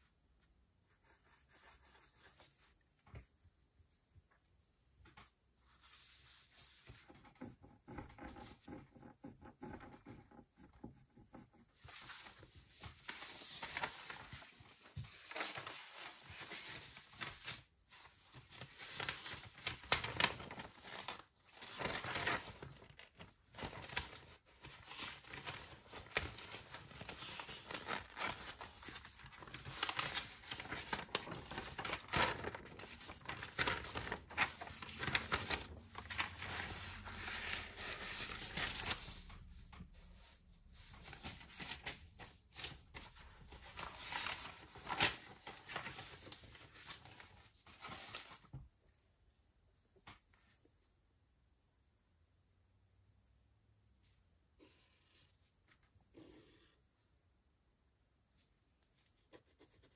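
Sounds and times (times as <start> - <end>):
paper rustling and crinkling: 5.0 - 48.7.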